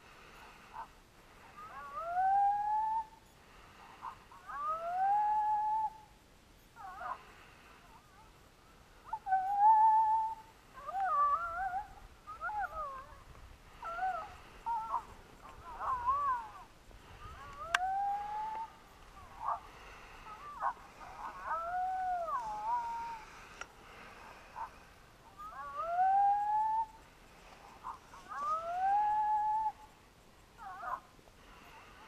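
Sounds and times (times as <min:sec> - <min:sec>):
coyote howls: 0:00.4 - 0:03.2, 0:04.0 - 0:07.4, 0:09.0 - 0:23.6, 0:24.2 - 0:27.0, 0:27.8 - 0:30.0, 0:30.6 - 0:31.2
coyote yips: 0:01.6 - 0:03.2, 0:04.0 - 0:06.1, 0:09.0 - 0:23.3, 0:24.6 - 0:27.0, 0:27.8 - 0:29.9.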